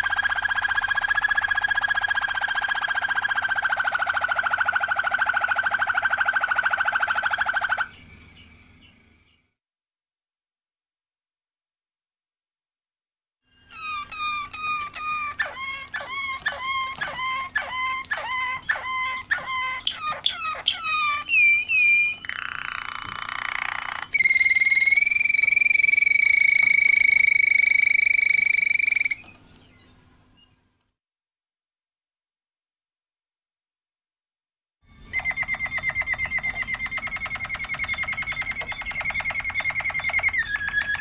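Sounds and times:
canary singing: 0.0 - 9.5, 13.5 - 30.6, 34.9 - 41.0.

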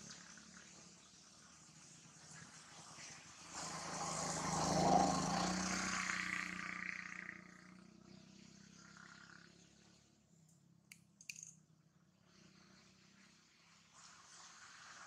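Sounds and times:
passing vehicle engine: 0.0 - 10.1.

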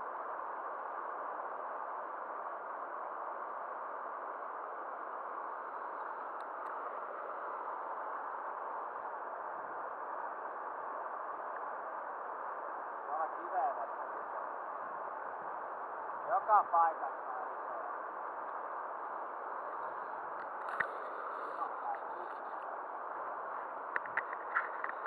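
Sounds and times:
faint ticks: 6.0 - 6.8, 19.7 - 22.7, 23.9 - 25.0.

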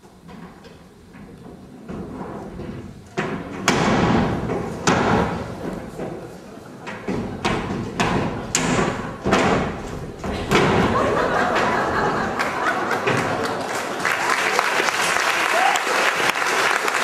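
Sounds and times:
thumps and knocks on stage: 0.0 - 12.4
audience applause: 10.9 - 17.0.

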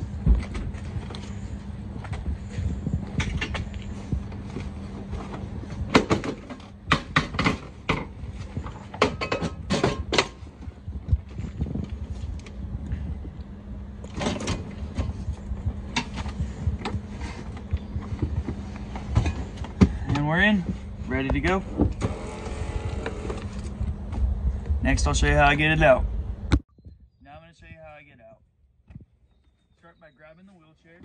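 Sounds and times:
steady low hum: 0.0 - 31.0
wheelchair frame clanking and knocking: 5.9 - 10.5.

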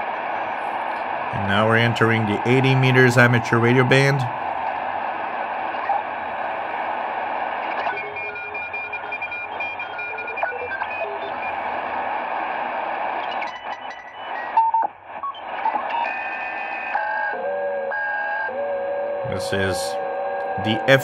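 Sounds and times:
radio static hiss: 5.4 - 17.3
radio whistling tones: 7.0 - 21.0.

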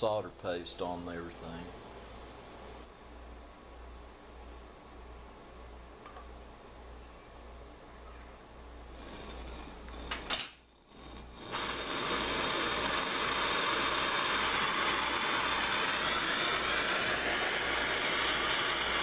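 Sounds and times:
gas torch flame hissing: 8.8 - 19.0
torch click: 9.1 - 10.7, 11.3 - 19.0.

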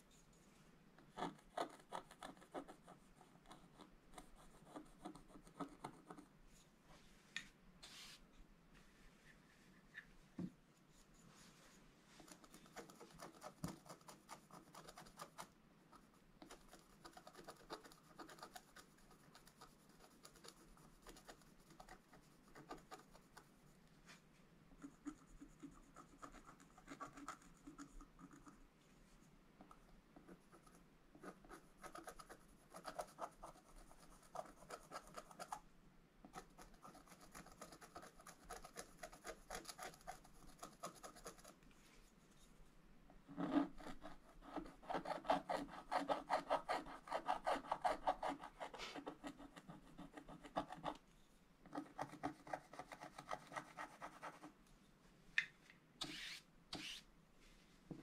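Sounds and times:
stylus scratching paper: 12.2 - 23.5, 24.8 - 28.6, 30.3 - 35.6, 36.3 - 41.6, 43.4 - 51.0, 51.7 - 54.6, 56.0 - 57.0.

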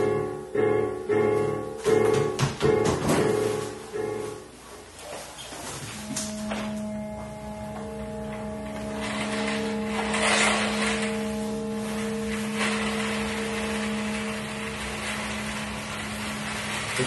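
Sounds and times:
drone of layered held tones: 6.0 - 17.0.

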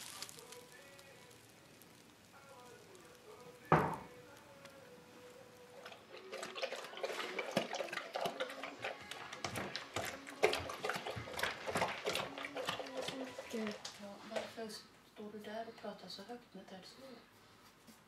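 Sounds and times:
loud thud: 3.7 - 4.1.

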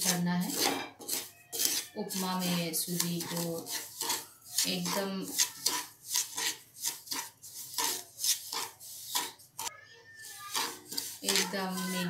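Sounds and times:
wooden spatula scraping metal pan: 0.0 - 12.0.

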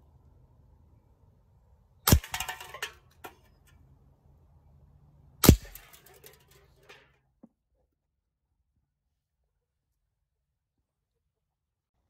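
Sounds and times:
airsoft revolver shot crack: 2.1 - 2.5, 5.4 - 5.9.

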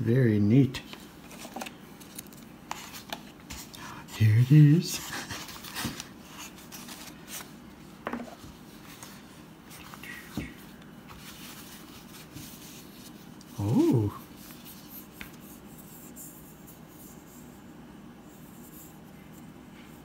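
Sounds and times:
short voice-like sound: 13.5 - 14.2.

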